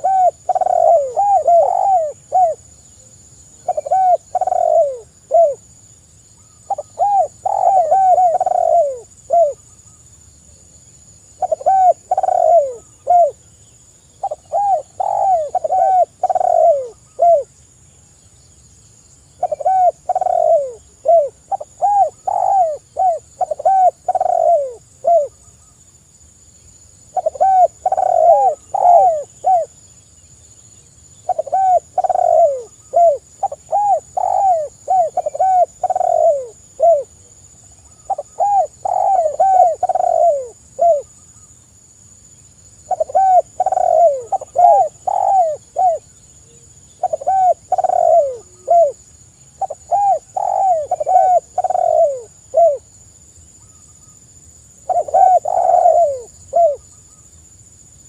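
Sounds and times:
doves cooing: 0.0s - 2.6s, 3.6s - 5.6s, 6.7s - 9.6s, 11.4s - 13.4s, 14.2s - 17.5s, 19.4s - 25.4s, 27.2s - 29.8s, 31.2s - 37.3s, 37.9s - 41.1s, 42.9s - 46.1s, 47.0s - 49.0s, 49.6s - 52.9s, 54.9s - 56.9s.

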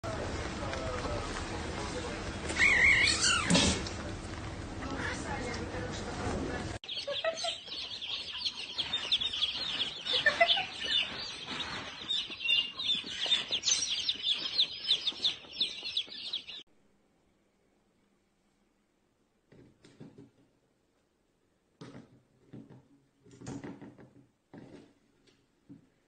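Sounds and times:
baby chicks peeping: 0.1s - 3.7s, 6.8s - 16.6s.

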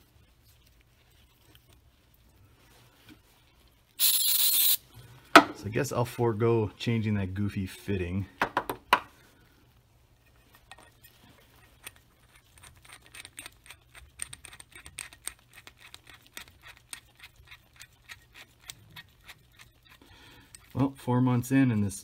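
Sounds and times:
small metal parts clicking: 11.7s - 20.7s.

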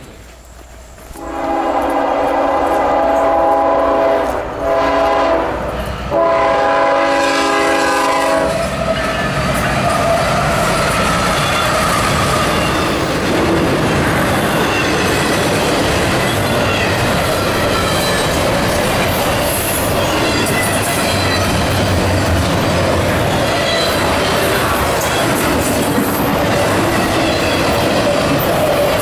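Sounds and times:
freight train rumble and clickety-clack: 0.0s - 29.0s
locomotive air horn blasts: 1.2s - 8.6s.

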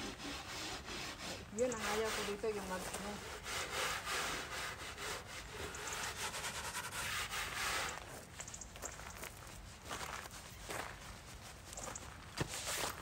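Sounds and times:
scraping frost off car window: 0.0s - 8.1s.

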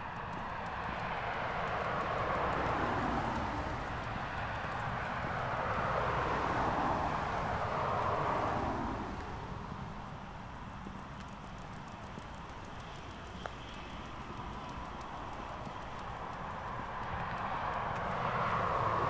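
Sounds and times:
passing vehicle rushing: 1.3s - 9.7s, 17.1s - 19.0s.

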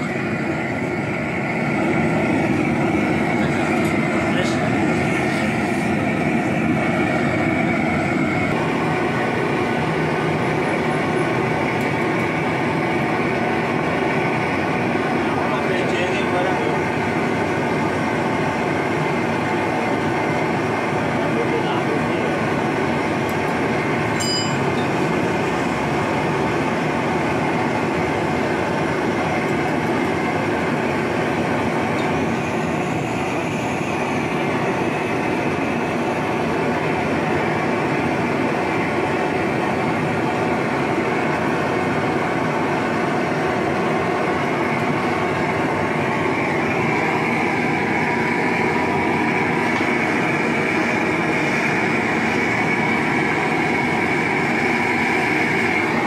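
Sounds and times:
gas torch roaring: 0.0s - 56.0s
steady high tone: 20.8s - 29.2s, 30.2s - 56.0s.

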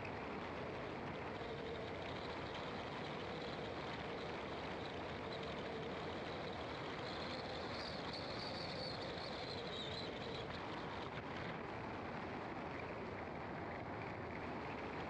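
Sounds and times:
car engine and tyre noise: 0.0s - 15.0s.

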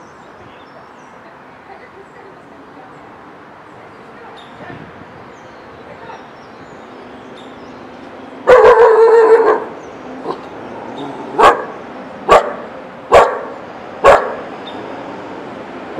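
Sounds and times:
dog barking: 8.5s - 9.7s, 11.4s - 14.5s.

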